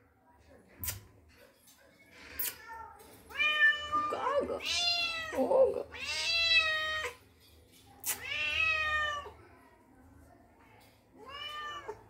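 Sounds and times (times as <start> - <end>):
cat meowing: 3.3 - 7.2, 8.1 - 9.3, 11.2 - 12.0.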